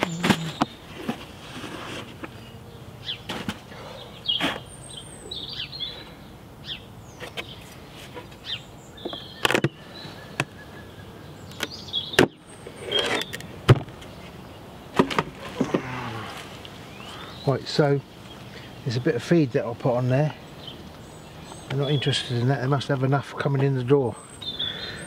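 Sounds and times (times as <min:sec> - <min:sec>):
bird chirps: 0:00.0 - 0:00.8, 0:02.3 - 0:15.0, 0:23.9 - 0:25.0.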